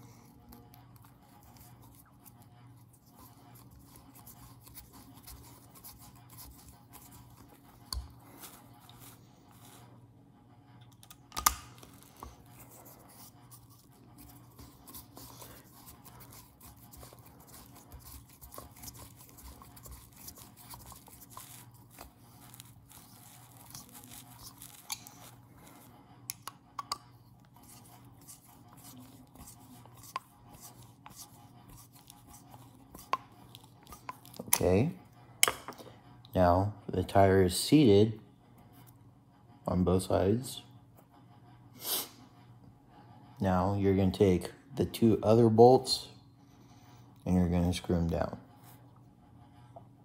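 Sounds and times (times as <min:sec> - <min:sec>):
faint scratching and rubbing: 0:11.9 - 0:26.1.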